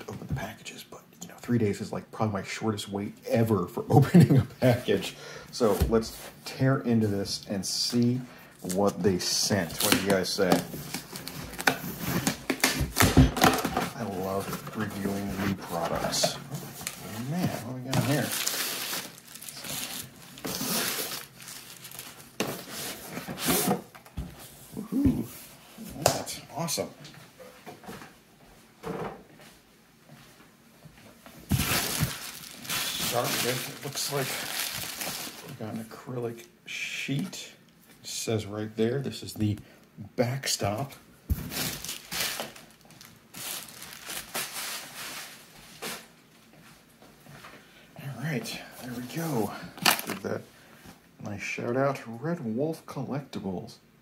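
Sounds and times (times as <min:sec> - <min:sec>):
bubble wrap crinkling: 0:08.7 - 0:13.2, 0:13.9 - 0:23.6, 0:31.5 - 0:35.9, 0:41.4 - 0:46.1
cardboard box rustling: 0:31.5 - 0:35.5.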